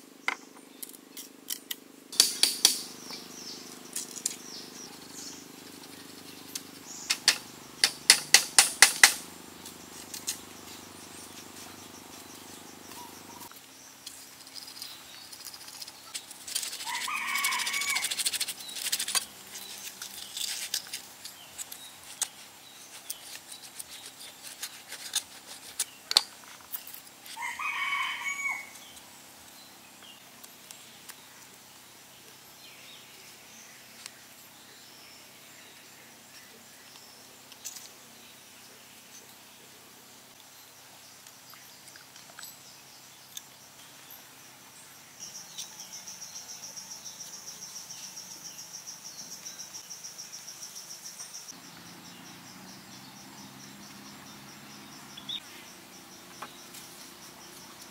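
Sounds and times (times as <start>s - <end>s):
sharp knocks: 2.2s - 3.0s, 7.1s - 9.2s.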